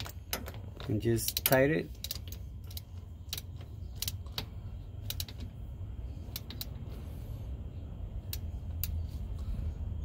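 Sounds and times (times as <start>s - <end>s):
ratchet wrench clicking: 0.0s - 5.6s, 6.3s - 6.8s, 8.2s - 9.1s
low steady rumble: 0.0s - 10.0s.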